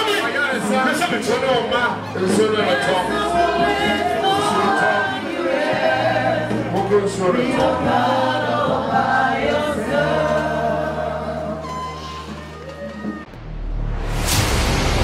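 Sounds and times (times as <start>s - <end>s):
choir and congregation singing: 2.2s - 12.0s.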